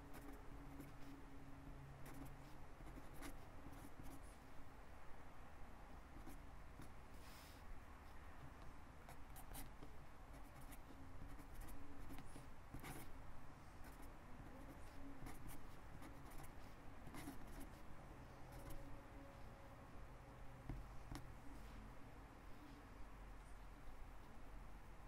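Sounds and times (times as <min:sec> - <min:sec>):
low room hum: 0:00.0 - 0:25.0
pen scratching on paper: 0:00.1 - 0:01.2, 0:02.0 - 0:04.3, 0:06.2 - 0:07.0, 0:09.1 - 0:13.2, 0:13.8 - 0:17.9.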